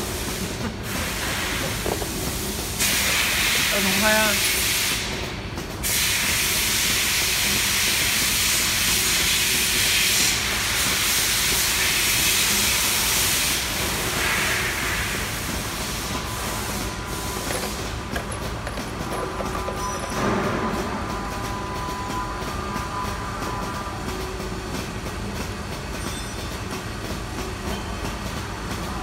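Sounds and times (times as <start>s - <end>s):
loud steady hiss: 0.0s - 19.0s.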